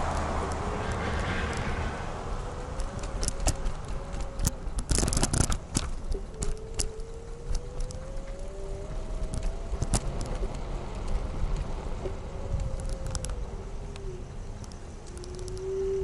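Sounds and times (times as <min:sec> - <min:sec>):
electric scooter motor whine: 0:00.0 - 0:16.0
road rumble: 0:00.0 - 0:16.0
rattling clicks: 0:02.7 - 0:08.5.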